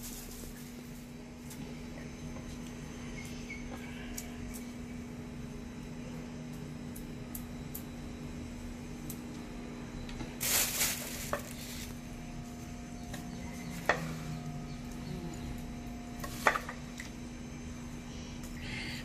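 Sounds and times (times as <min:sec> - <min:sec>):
faint steady hum: 0:00.0 - 0:19.0
salad rustling: 0:10.4 - 0:11.9.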